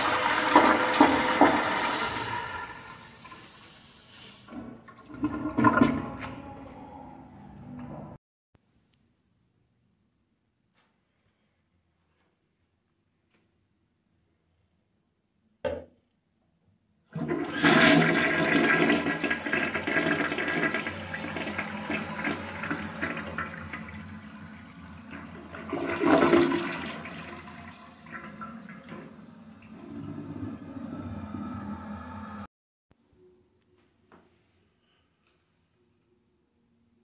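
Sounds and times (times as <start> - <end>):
toilet flushing: 0.0 - 8.0, 17.1 - 32.5.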